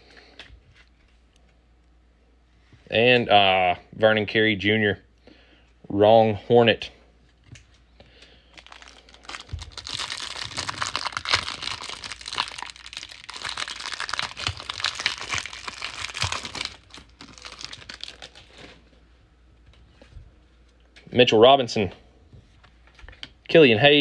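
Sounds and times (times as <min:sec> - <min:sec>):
plastic wrapper crinkling and tearing: 0:08.5 - 0:18.8.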